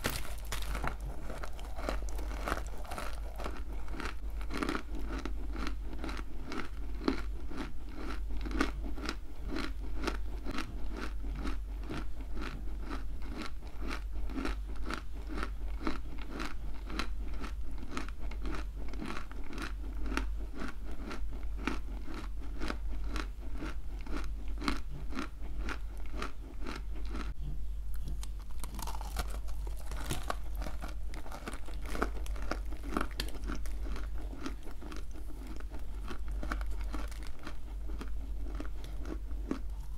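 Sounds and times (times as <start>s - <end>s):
gritty chewing crunches: 0.0s - 39.9s.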